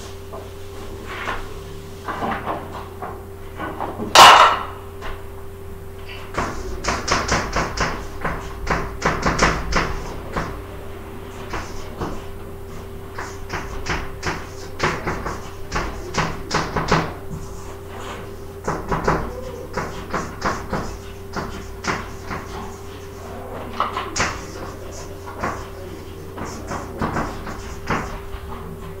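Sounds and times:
steady hum: 0.0s - 29.0s
chalk tapping and scraping: 6.2s - 10.6s, 11.3s - 29.0s.

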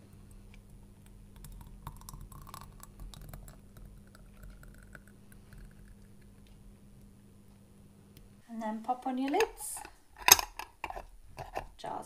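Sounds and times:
jam pouring into jar: 1.3s - 6.3s.

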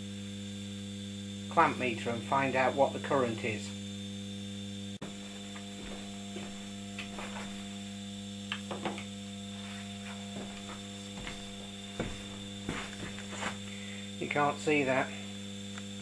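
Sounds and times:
electric motor running with hum: 0.0s - 16.0s.

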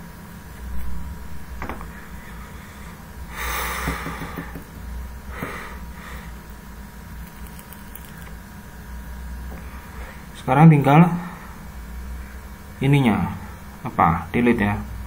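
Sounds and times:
low steady hum: 0.0s - 15.0s
man breathing into microphone: 1.9s - 4.6s.

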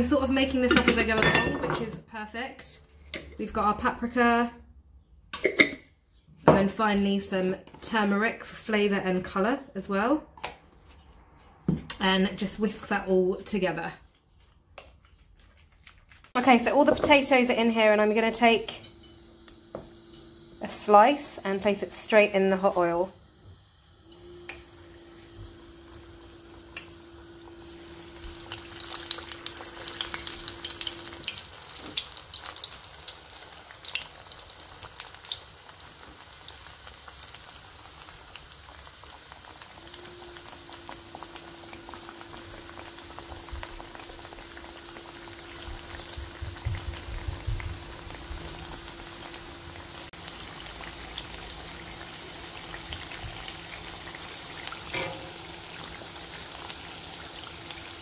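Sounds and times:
deep-frying sizzle: 18.2s - 58.0s.

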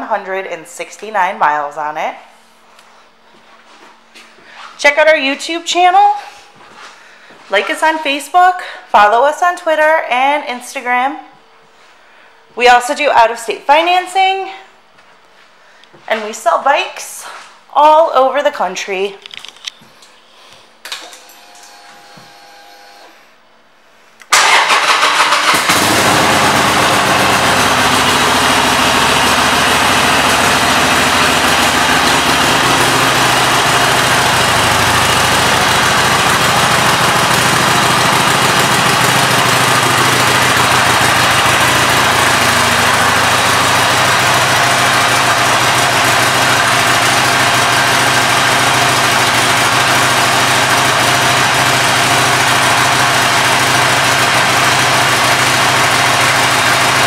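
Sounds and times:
motorcycle engine starting and idling: 24.3s - 57.0s.

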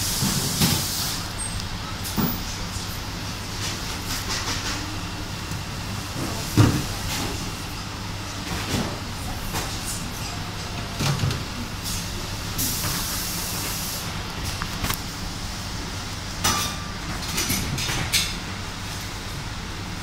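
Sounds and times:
compressed air hisses: 0.0s - 1.3s, 11.8s - 14.1s.

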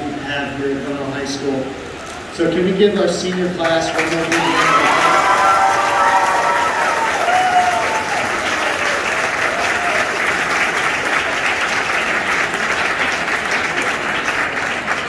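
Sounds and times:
audience applauding: 3.2s - 15.0s
short cheers: 4.0s - 10.4s.

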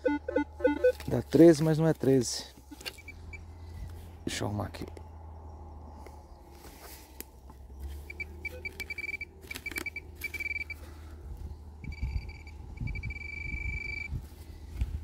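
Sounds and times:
metal detector beeping: 0.0s - 1.2s, 2.7s - 3.4s, 8.1s - 10.8s, 11.8s - 14.2s.

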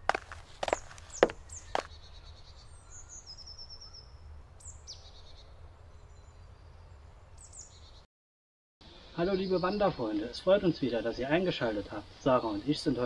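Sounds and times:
small bird calls: 0.0s - 8.0s.

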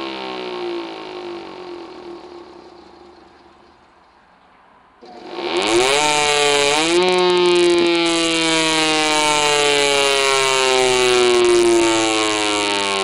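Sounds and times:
siren wailing: 5.6s - 13.0s.

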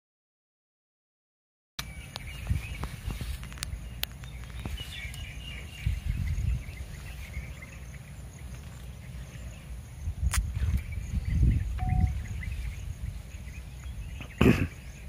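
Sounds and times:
faint high-pitched chirping: 1.8s - 15.0s.

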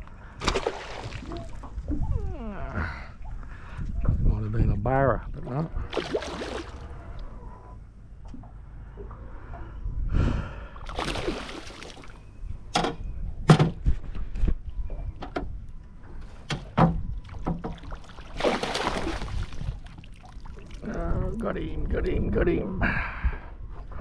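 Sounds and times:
fish splashing at surface: 0.4s - 1.6s, 5.9s - 6.9s, 10.9s - 12.1s, 18.3s - 19.7s.

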